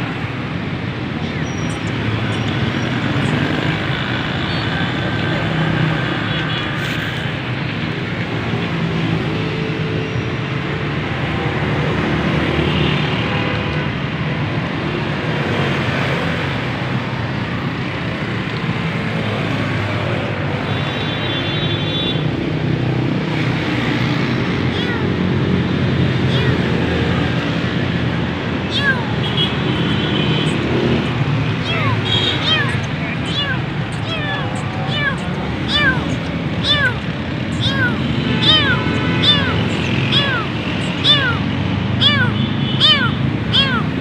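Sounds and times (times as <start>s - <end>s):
road traffic: 0.0s - 44.0s
high-pitched tone: 31.6s - 44.0s.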